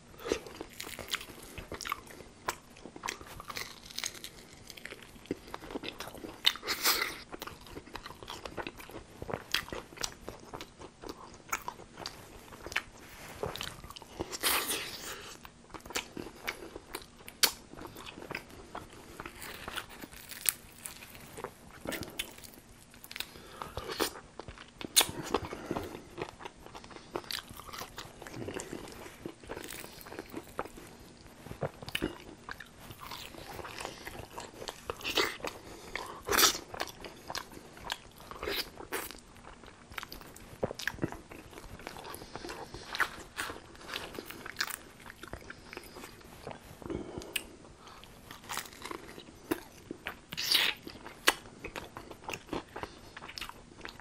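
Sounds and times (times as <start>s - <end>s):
crunchy biting and chewing: 0.2s - 54.0s.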